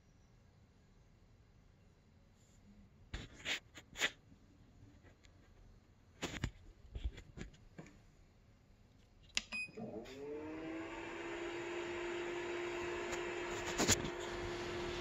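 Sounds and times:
fans whirring hum: 0:09.0 - 0:15.0.

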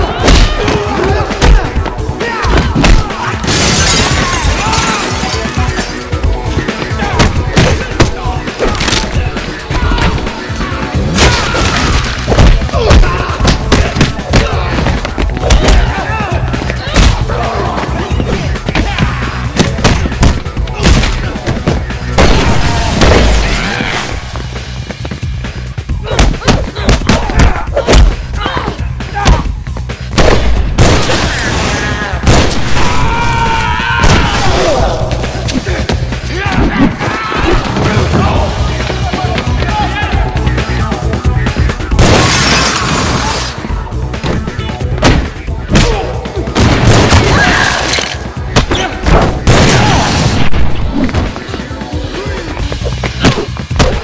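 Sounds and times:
music: 0:00.0 - 0:54.0
fight hits and thuds: 0:00.1 - 0:05.0, 0:06.7 - 0:09.2, 0:11.1 - 0:17.3, 0:18.2 - 0:24.4, 0:26.1 - 0:31.3, 0:44.2 - 0:47.6, 0:48.5 - 0:51.6, 0:53.0 - 0:54.0
booming fiery bursts: 0:30.2 - 0:34.8, 0:48.6 - 0:51.3
punch impacts: 0:44.2 - 0:46.0
heavy booms: 0:48.5 - 0:51.4.

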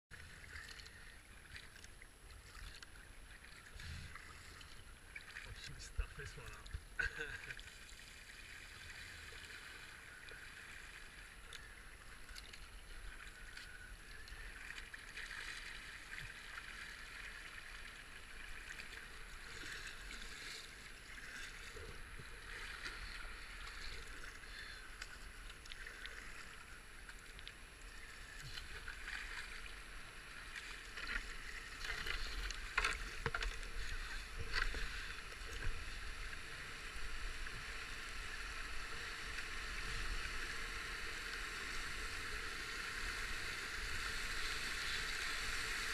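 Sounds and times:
water lapping along kayak hull: 0:00.1 - 0:45.9
paddle strokes splashing: 0:00.2 - 0:45.9.

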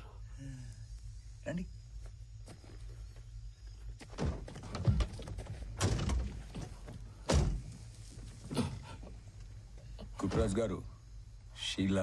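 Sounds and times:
dull thunks and knocks: 0:04.0 - 0:07.8.

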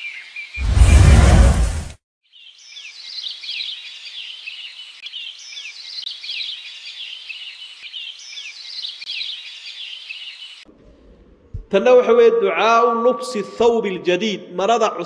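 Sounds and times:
birds chirping: 0:02.3 - 0:11.7.

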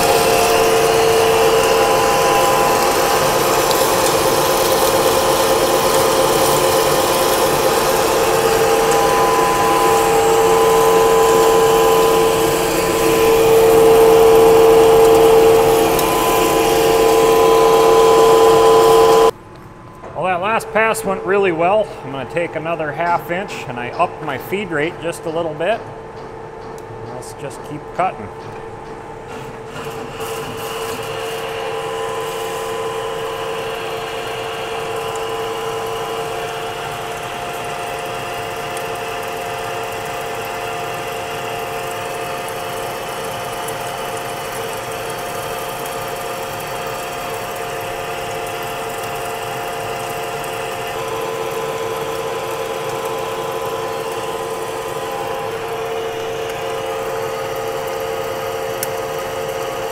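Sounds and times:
hiss of metal cutting: 0:00.0 - 0:19.3
metal lathe whining: 0:00.0 - 0:19.4, 0:20.2 - 0:59.9.

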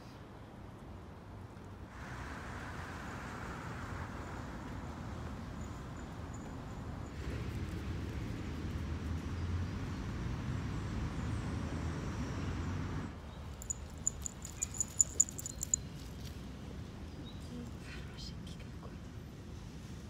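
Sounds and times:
dog collar bell jingling: 0:13.5 - 0:16.1.

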